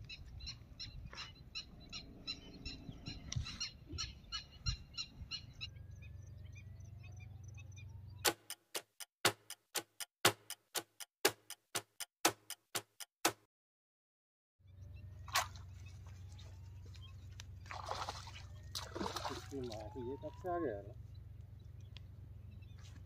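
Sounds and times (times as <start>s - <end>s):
clock ticking: 8.3s - 13.4s
low outdoor rumble: 14.7s - 19.0s, 20.0s - 23.0s.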